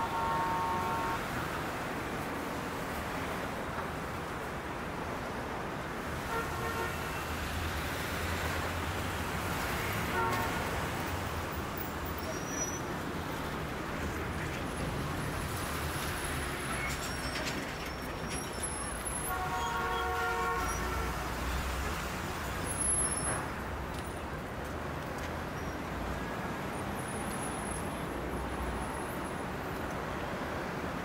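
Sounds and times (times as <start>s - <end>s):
vehicle horn: 0.0s - 1.3s, 6.3s - 7.3s, 9.8s - 10.7s, 19.2s - 21.4s
traffic rumble: 0.0s - 31.0s.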